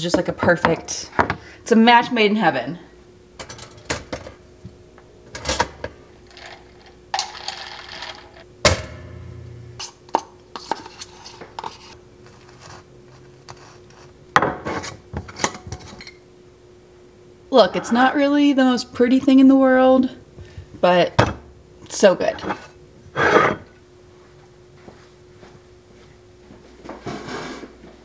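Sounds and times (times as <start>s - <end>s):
low hum: 8.2s - 9.8s.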